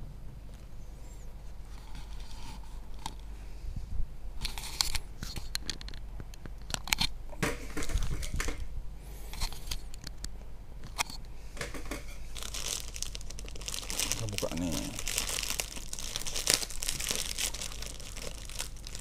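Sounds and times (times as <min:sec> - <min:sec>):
plastic wrapping crinkling: 0:12.1 - 0:19.0.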